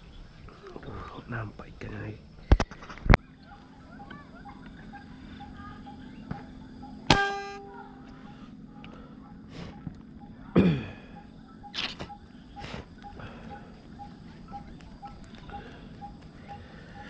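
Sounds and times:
faint regular chirping: 0.0 - 17.0
speargun firing with metallic twang: 7.1 - 7.7.

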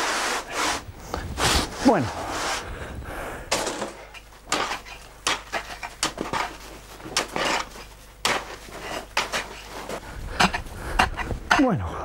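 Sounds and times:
iron tool chopping packed snow and ice: 4.5 - 9.7.

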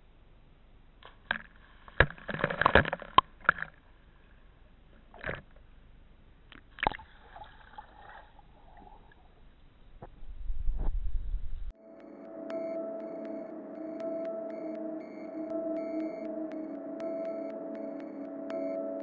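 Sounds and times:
water splashing in a pool: 6.6 - 9.4.

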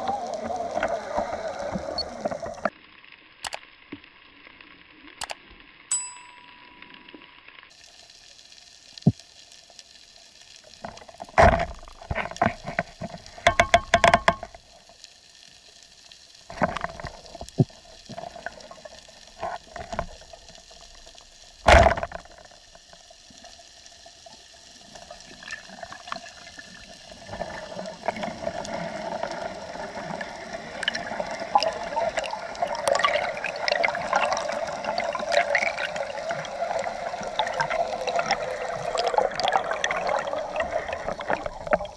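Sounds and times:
bubbling rushing water: 0.0 - 2.8, 24.7 - 41.9
underwater clicks and knocks: 10.8 - 14.6, 21.6 - 22.6, 41.0 - 41.9.

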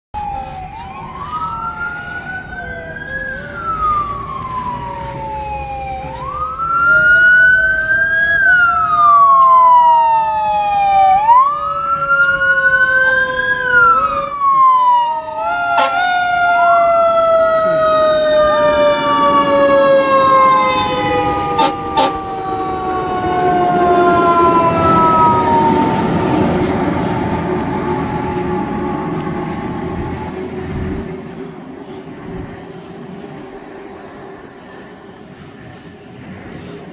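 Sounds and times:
fire sirens wailing: 0.1 - 36.9
fire truck engine passing: 0.2 - 36.9
lower steady falling siren tone: 0.2 - 36.9.

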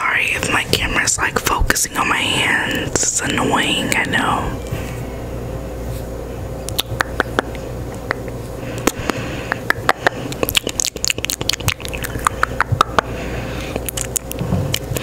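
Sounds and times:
steady low hum: 0.0 - 15.0
wet mouth clicks and lip smacks: 6.7 - 13.1, 13.8 - 15.0.

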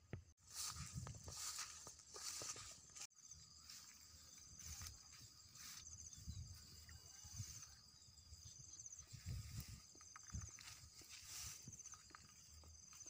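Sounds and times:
dull footsteps: 0.1 - 7.0
grass rustling: 0.4 - 7.9, 8.9 - 13.0
insects trilling: 1.4 - 13.0.

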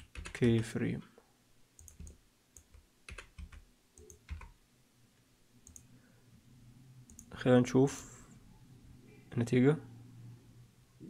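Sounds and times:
keyboard and mouse clicks: 0.0 - 0.6, 1.8 - 4.6, 5.6 - 5.9, 7.1 - 7.3.

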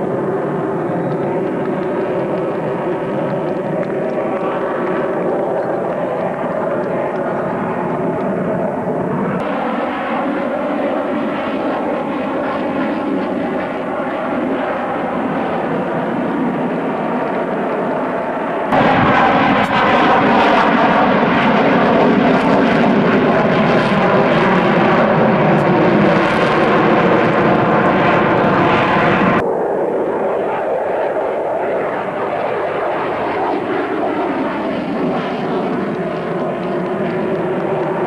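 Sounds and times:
jet engines roaring: 0.0 - 38.0.

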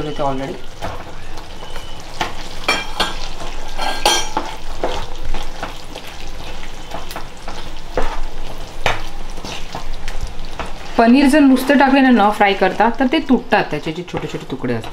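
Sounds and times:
gravy sizzling: 0.0 - 14.9
spatula scraping and tapping pan: 1.7 - 5.8.

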